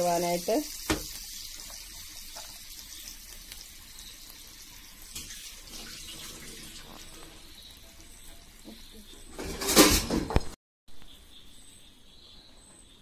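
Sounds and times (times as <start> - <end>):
water sizzling in frying pan: 0.0 - 9.5.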